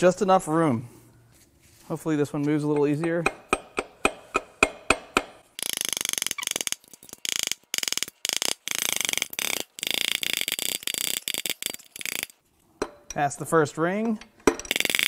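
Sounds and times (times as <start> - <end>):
ratchet wrench clicking: 5.6 - 12.4, 14.7 - 15.0.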